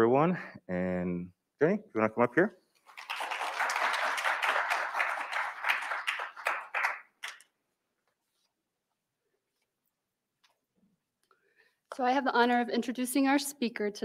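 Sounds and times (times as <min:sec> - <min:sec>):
audience applauding: 0:02.9 - 0:07.5.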